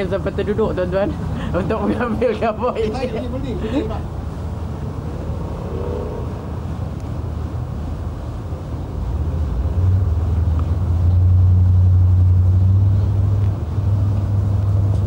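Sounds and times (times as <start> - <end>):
boat engine drone: 0.0 - 15.0
water noise: 0.0 - 15.0
wind: 0.0 - 15.0.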